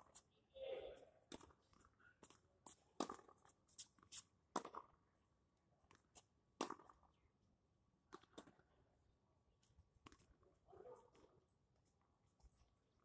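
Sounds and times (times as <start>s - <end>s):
ball bouncing on hard court: 3.0s - 3.4s, 4.5s - 4.9s
tennis ball struck by racket: 3.0s - 3.4s, 4.5s - 4.9s, 6.6s - 6.9s.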